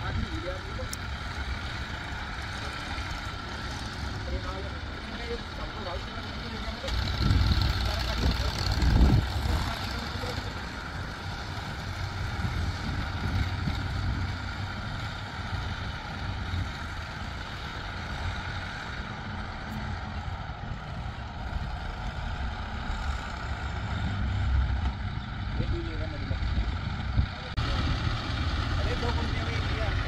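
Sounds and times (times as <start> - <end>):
heavy diesel engine rumbling: 0.0 - 30.0.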